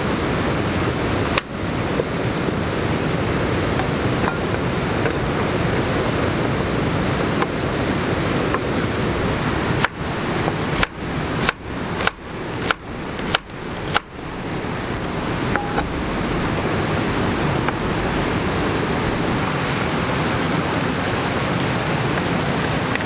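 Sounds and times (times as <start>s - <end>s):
rushing background noise: 0.0s - 23.0s
knife chopping on plastic board: 9.7s - 14.2s.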